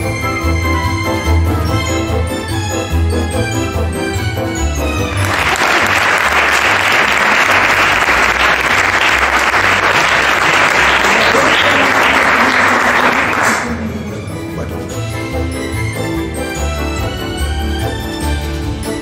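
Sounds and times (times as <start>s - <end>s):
background music: 0.0s - 19.0s
audience applauding: 5.0s - 14.0s.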